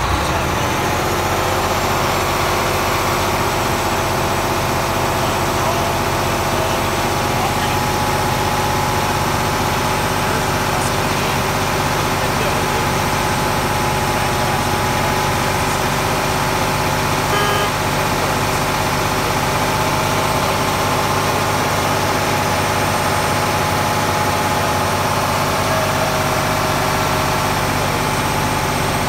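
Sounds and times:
diesel truck engine idling: 0.0 - 29.0
short high tone: 17.2 - 17.9.

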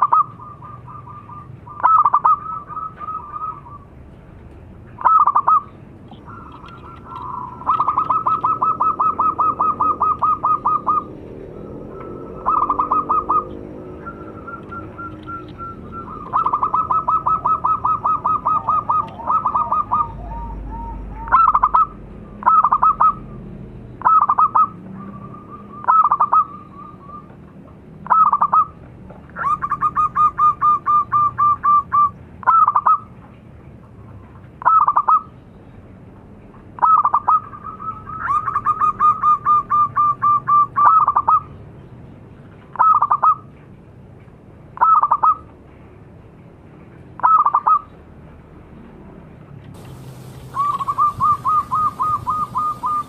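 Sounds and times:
dove cooing: 0.0 - 3.9, 5.0 - 23.4, 24.0 - 28.8, 49.8 - 53.0.

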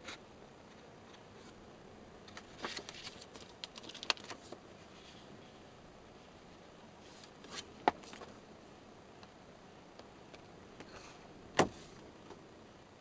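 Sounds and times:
faint steady hiss: 0.0 - 13.0
paper rustling: 2.3 - 5.2.

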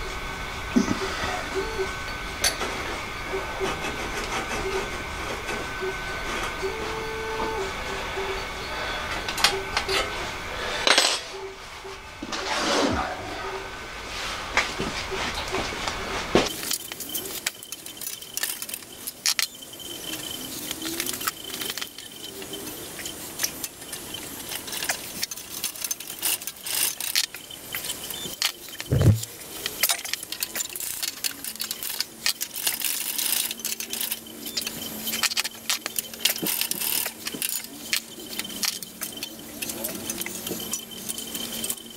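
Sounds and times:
metallic clicks and clinks: 16.5 - 41.9.

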